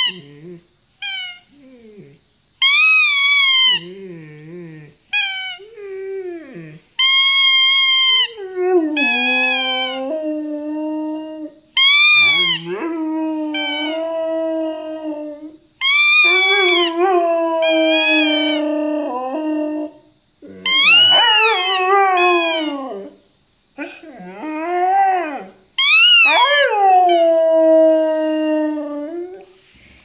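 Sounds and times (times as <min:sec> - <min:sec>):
squeaky toy squeaks: 0:01.0 - 0:01.4, 0:02.6 - 0:03.8, 0:05.2 - 0:05.6, 0:07.0 - 0:08.3, 0:11.8 - 0:12.6, 0:15.8 - 0:16.9, 0:20.7 - 0:21.4, 0:25.8 - 0:26.2
dog howling: 0:02.7 - 0:23.2, 0:23.8 - 0:29.5.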